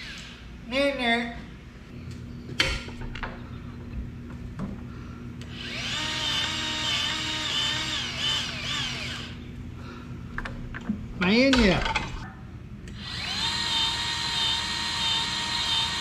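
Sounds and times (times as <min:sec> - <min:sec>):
grease gun motor whining: 0:05.4 - 0:09.4, 0:12.9 - 0:16.0.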